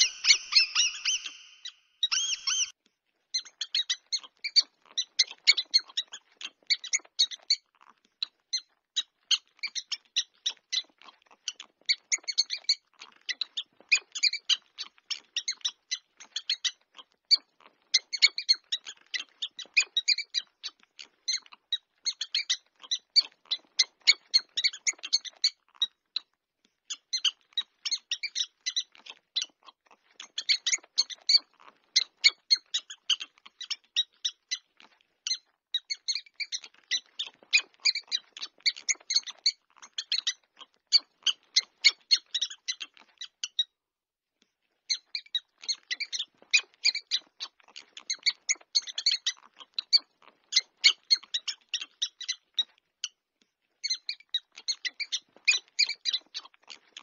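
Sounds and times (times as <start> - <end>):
mouse squeaking: 0.0 - 26.3, 26.9 - 43.7, 44.8 - 57.0.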